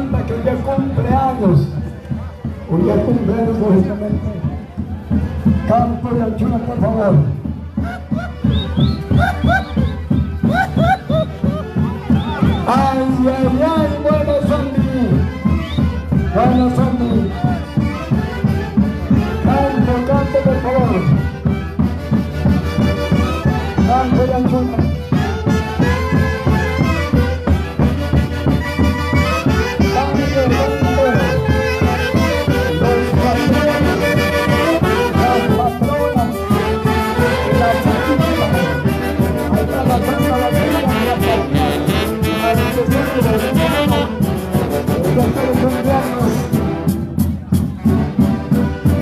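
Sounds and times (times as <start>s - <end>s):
bass drums beating: 0.0s - 49.0s
saxophone melody: 25.0s - 45.2s.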